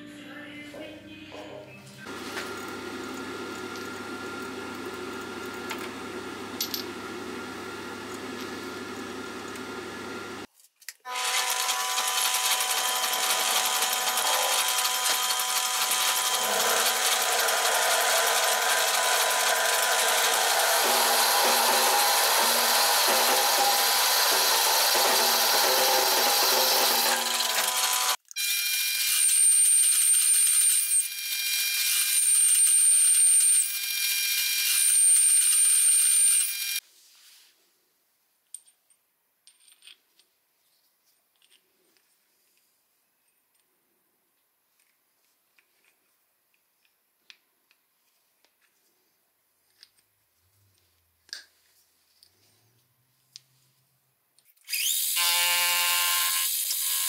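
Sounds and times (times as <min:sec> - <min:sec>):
boring bar cutting: 0:02.1 - 0:10.5, 0:11.1 - 0:36.8, 0:54.6 - 0:57.0
lathe drilling metal: 0:11.1 - 0:36.8, 0:54.7 - 0:57.0.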